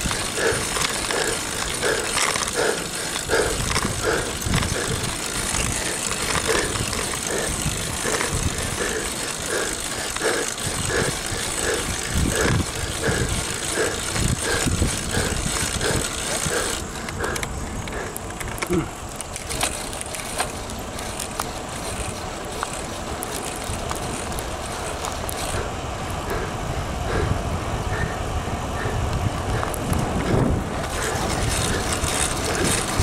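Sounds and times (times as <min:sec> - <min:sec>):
wind rush: 0:00.0 - 0:18.0, 0:25.6 - 0:33.0
bicycle tyre noise on road: 0:00.0 - 0:33.0.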